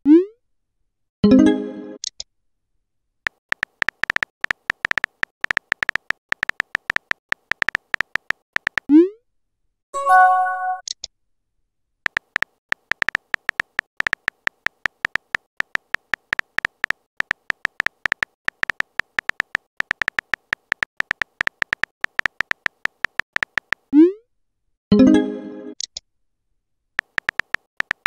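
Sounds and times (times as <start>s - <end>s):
keyboard clicks: 3.3s - 8.9s, 12.1s - 23.9s, 27.0s - 28.0s
brief chime: 10.0s - 10.8s.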